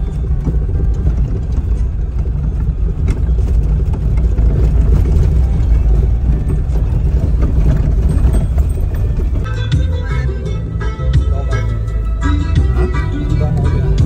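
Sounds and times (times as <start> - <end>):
engine and tyre drone: 0.0 - 14.0.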